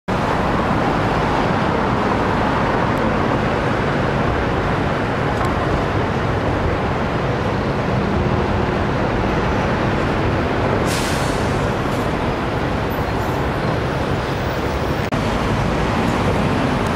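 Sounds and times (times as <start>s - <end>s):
bus passing: 0.1s - 16.9s
traffic engine hum and tyre noise: 0.1s - 16.9s
tram passing: 0.1s - 16.9s
short hiss: 10.8s - 11.6s.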